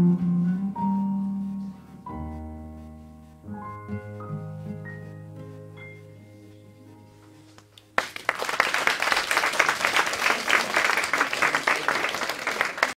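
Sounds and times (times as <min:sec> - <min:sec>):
audience applauding: 0:07.8 - 0:13.0.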